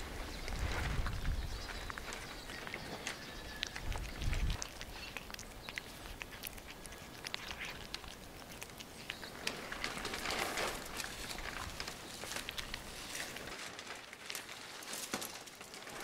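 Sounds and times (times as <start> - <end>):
cat chewing and licking: 0.0 - 13.6
rustle: 0.0 - 16.0.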